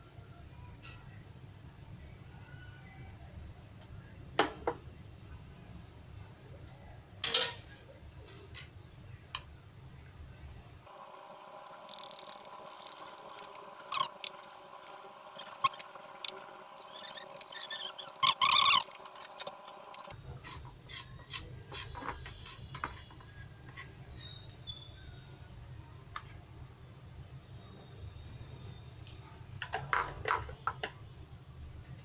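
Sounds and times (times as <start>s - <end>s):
steady hum: 10.9s - 20.2s
wire whisk beating batter: 10.9s - 24.4s
spoon stirring batter in bowl: 11.2s - 24.4s.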